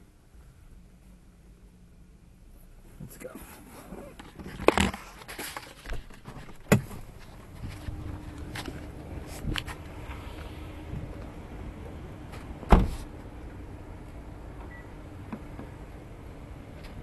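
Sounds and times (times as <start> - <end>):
car door clicks and knocks: 6.6 - 7.1
loud thump: 12.6 - 13.0.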